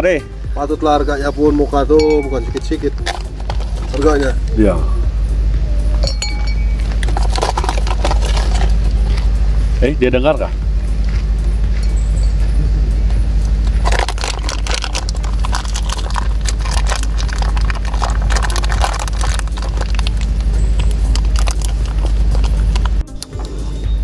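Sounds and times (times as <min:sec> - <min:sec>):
steady low rumble: 0:00.0 - 0:24.0
metal spoon clinking on glass: 0:06.0 - 0:07.0.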